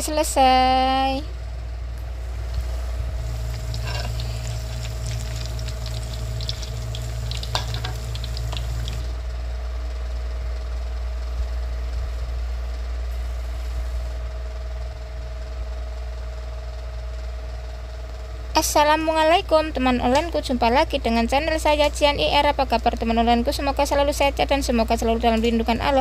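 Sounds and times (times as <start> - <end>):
steady low hum: 0.0 - 26.0
food sizzling in hot oil: 2.2 - 9.1.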